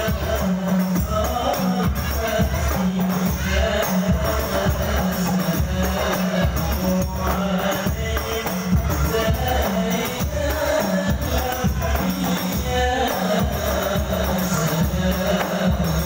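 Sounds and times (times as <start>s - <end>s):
frame drums beating: 0.0s - 16.0s
group of voices singing: 0.0s - 16.0s
lead voice singing into microphone: 0.0s - 16.0s.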